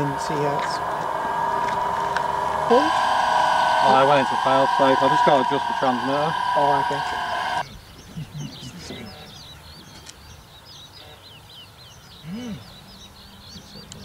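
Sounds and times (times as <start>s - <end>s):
low rising and falling sound: 0.0s - 7.6s
birds chirping and trilling: 0.0s - 14.0s.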